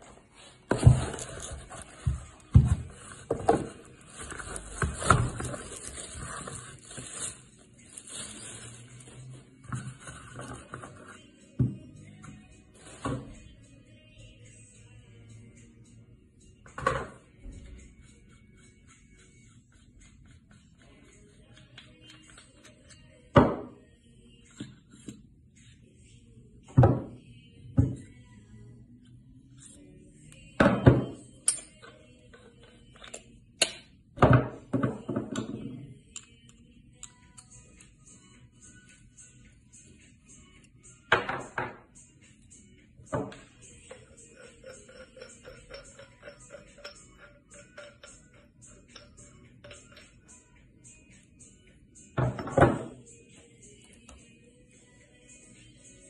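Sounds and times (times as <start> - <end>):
metal parts knocking on wooden table: 43.2 - 50.2.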